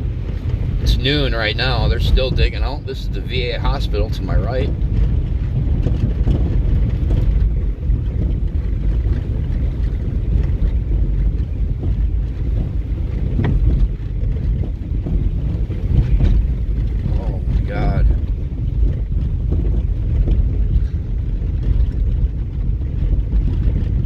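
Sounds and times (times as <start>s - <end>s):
car engine and tyres rumbling: 0.0s - 24.0s.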